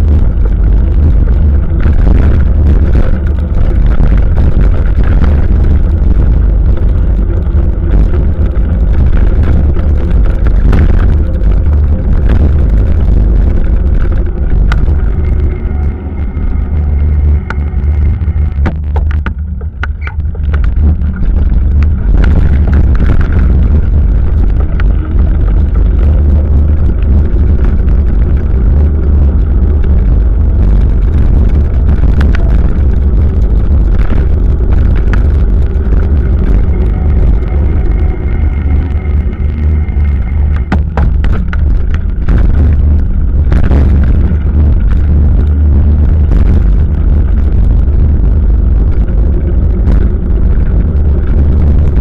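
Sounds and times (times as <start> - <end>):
road rumble: 0.0 - 52.0
wind noise: 0.0 - 52.0
clicks and rattles: 18.6 - 26.1.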